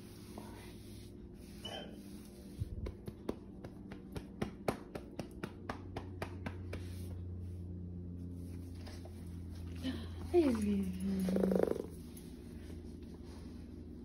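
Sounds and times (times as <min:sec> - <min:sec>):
hand patting a dog: 0:02.5 - 0:07.2.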